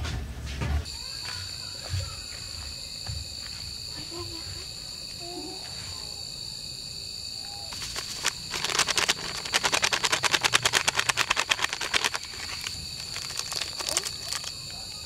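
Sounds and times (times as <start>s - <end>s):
insects chirring: 0.9s - 15.0s
foil sachet shaken rattling: 7.7s - 14.6s.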